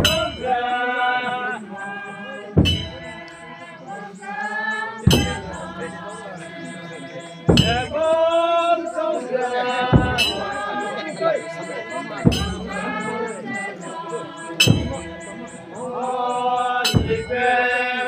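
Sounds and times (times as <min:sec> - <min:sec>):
deep drum beats: 0:00.0 - 0:00.6, 0:02.6 - 0:03.3, 0:05.1 - 0:06.8, 0:07.4 - 0:08.4, 0:09.7 - 0:13.8, 0:14.4 - 0:15.8, 0:16.9 - 0:17.6
group singing a chant: 0:00.0 - 0:18.0.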